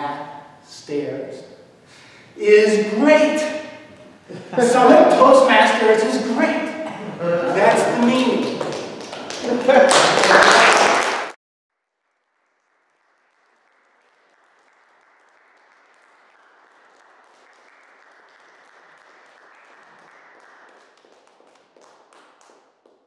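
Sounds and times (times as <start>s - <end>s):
faint applause: 6.8s - 11.4s, 12.9s - 22.6s.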